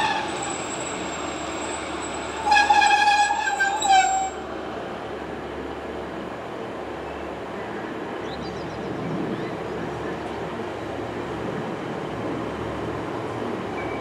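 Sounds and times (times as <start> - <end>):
train running noise: 0.0 - 14.0
train horn blast: 2.4 - 4.4.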